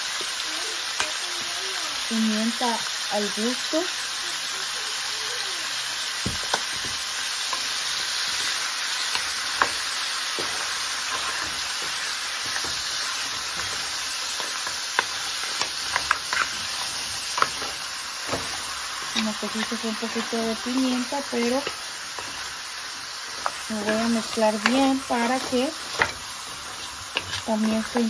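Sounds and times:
meat sizzling in a pan: 0.0 - 28.0
wooden spoon knocking in a pan: 6.2 - 7.0, 23.3 - 28.0.

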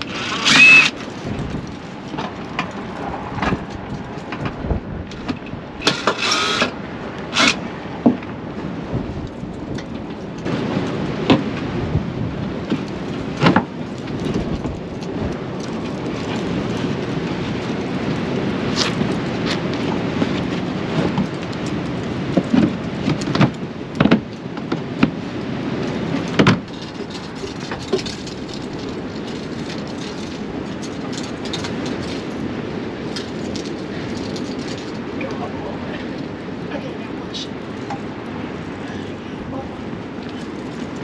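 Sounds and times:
hand tools clicking and knocking: 0.0 - 8.2
low outdoor rumble: 0.0 - 41.0.

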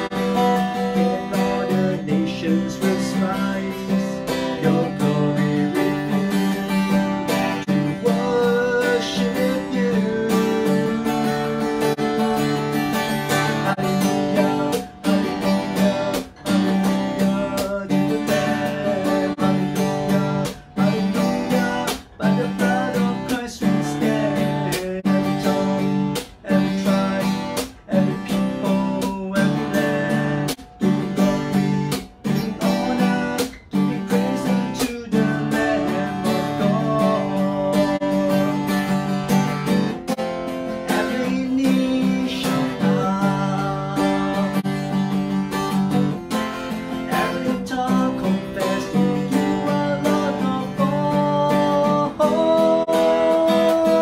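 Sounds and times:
man singing a worship song: 0.0 - 39.3, 40.7 - 45.1, 46.7 - 54.0
acoustic guitar strumming: 0.0 - 54.0.

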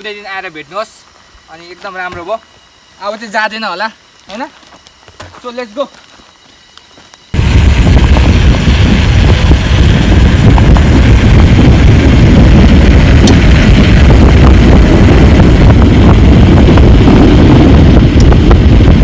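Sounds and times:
bike tyre noise: 4.1 - 19.0
wind rumbling on microphone: 7.3 - 19.0.

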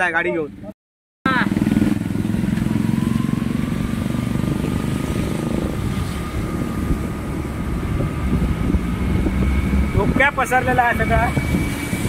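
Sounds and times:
motorbike engine running: 1.3 - 12.0
thin steady whine: 6.1 - 12.0.

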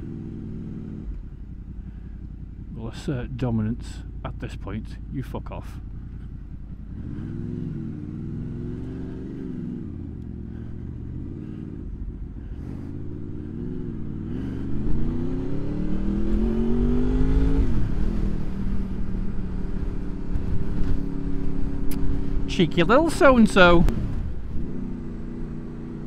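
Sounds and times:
motorcycle engine revving: 0.0 - 26.0
wind rumble on microphone: 16.0 - 22.5, 23.8 - 24.9.

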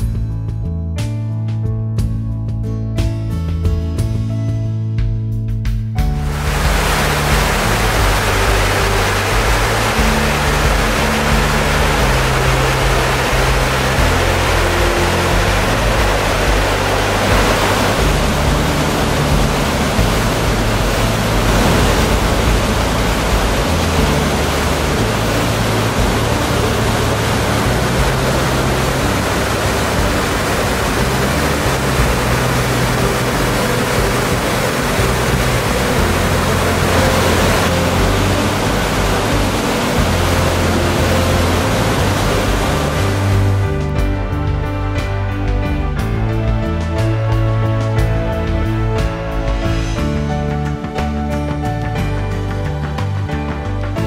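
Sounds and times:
whitewater rushing over rapids: 6.2 - 43.8.

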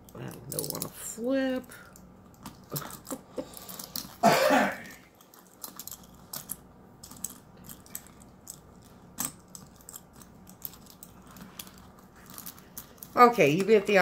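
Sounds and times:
person coughing: 4.2 - 5.0.

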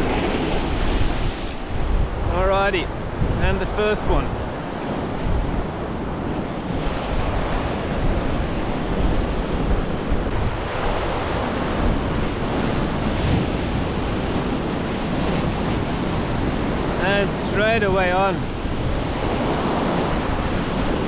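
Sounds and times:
ocean surf washing ashore: 0.0 - 21.0
wind buffeting microphone: 0.0 - 21.0.

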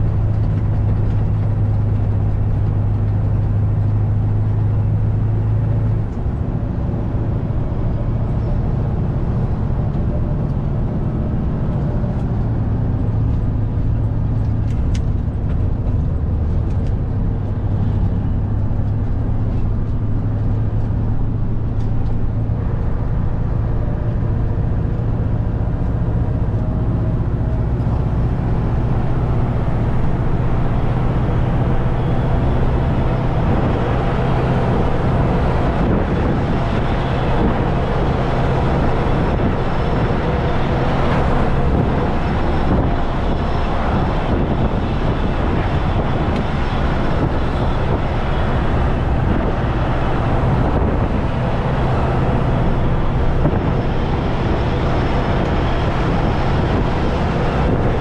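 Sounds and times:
diesel truck engine running: 0.0 - 58.0
road noise: 0.0 - 58.0.

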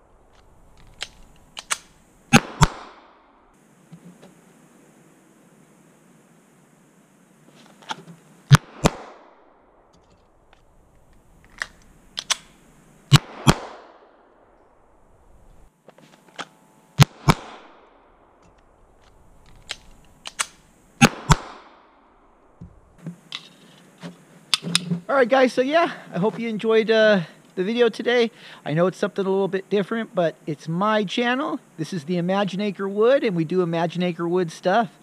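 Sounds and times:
pistol shots with echo: 1.7 - 3.0, 8.5 - 9.3, 13.1 - 14.1.

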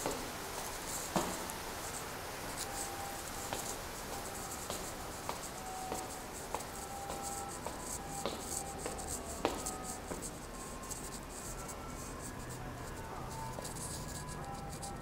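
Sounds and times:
footsteps on stone floor: 0.0 - 11.4.

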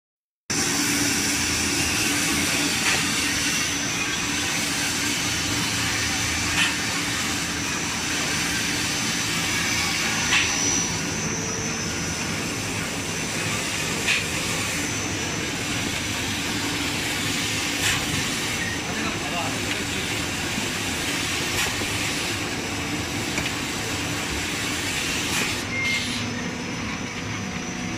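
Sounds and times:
brief sharp machine sound: 0.5 - 20.2, 24.6 - 26.4
machine drone with high whine: 0.5 - 27.9.

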